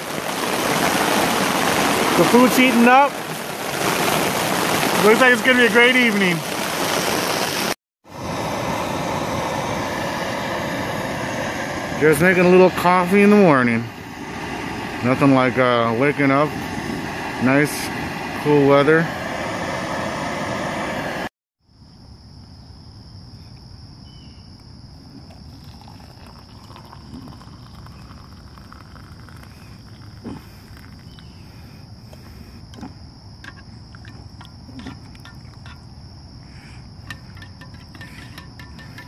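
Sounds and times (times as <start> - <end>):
crickets trilling: 0.0 - 20.2, 21.6 - 39.0.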